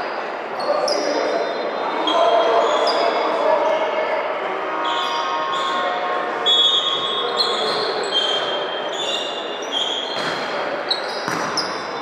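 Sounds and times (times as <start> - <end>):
court shoes squeaking on gym floor: 6.5 - 12.0
ball being hit thump: 11.3 - 11.7.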